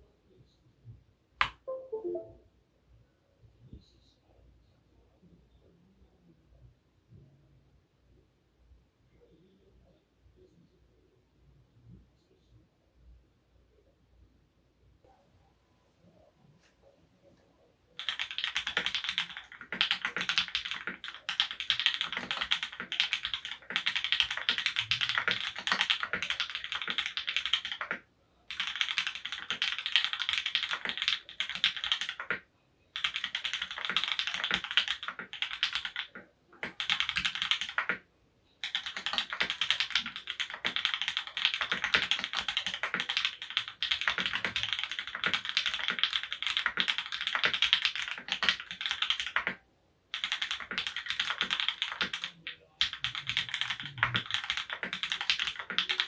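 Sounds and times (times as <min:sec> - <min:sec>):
mechanical keyboard typing: 0:18.0 - 0:32.4, 0:33.0 - 0:38.0, 0:38.6 - 0:56.0.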